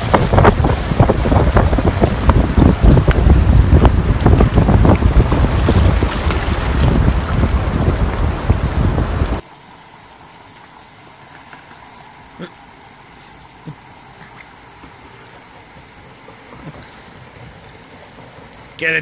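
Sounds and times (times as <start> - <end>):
wind and surf rushing: 0.0 - 9.4
garden hose spraying water: 8.9 - 19.0.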